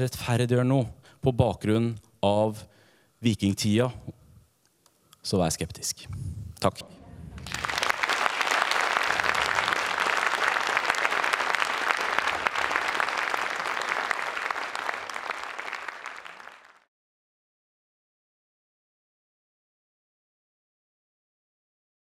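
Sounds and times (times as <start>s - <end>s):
audience applauding: 7.4s - 16.9s.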